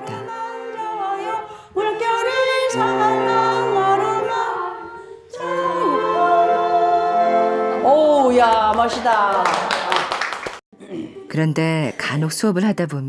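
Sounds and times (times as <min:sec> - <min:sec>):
women singing in unison: 0:00.0 - 0:08.9.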